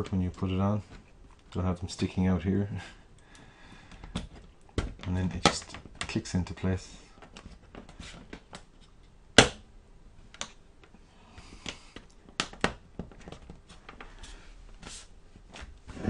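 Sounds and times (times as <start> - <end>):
soft handling noise: 0.0 - 9.2, 10.2 - 16.0
plastic clips snapping into place: 11.6 - 13.4.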